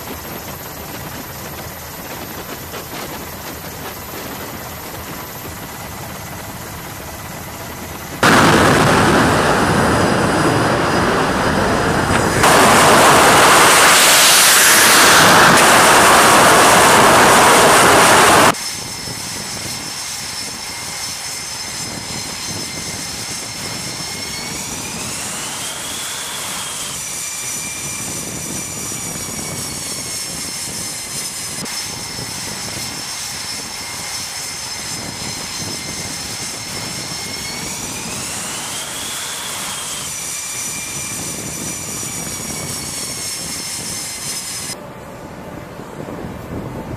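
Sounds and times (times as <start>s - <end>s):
jet engine whine: 0.0s - 46.9s
jet engines roaring: 0.0s - 46.9s.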